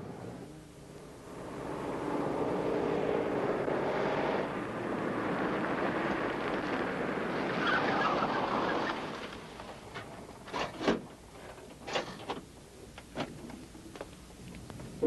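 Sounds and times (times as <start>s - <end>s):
car engine passing: 0.0s - 9.9s.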